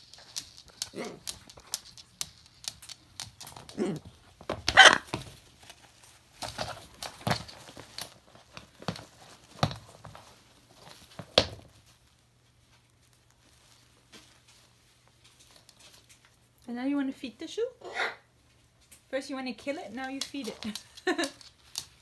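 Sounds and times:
parrot tearing at fabric: 0.0 - 11.8.

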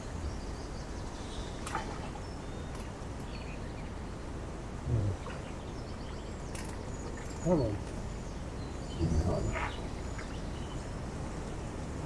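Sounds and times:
wind rumble on microphone: 4.7 - 12.0
low vocal grunt: 4.8 - 5.2
faint bird chirps: 4.9 - 11.0.

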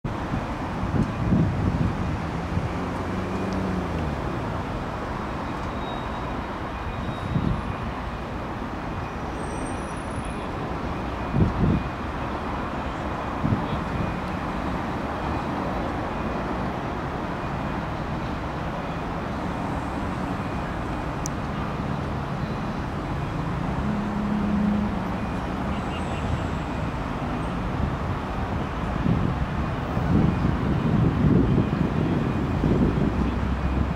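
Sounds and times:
road traffic noise: 0.0 - 33.9
wind buffeting microphone: 0.1 - 5.0, 26.3 - 33.9.

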